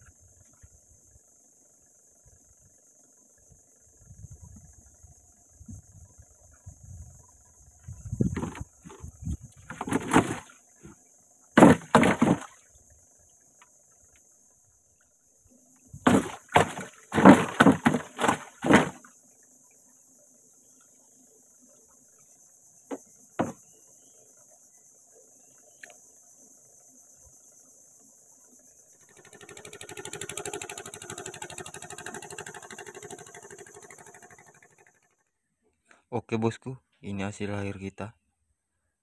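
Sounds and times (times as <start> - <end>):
loud knocks: 11.6 - 12.5, 16.0 - 19.0
small boat engine buzzing: 26.4 - 35.6.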